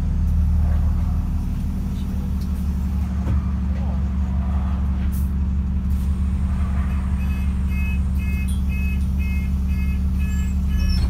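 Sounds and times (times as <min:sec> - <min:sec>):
bus engine droning: 0:00.0 - 0:11.0
electronic warning beeps: 0:07.2 - 0:11.0.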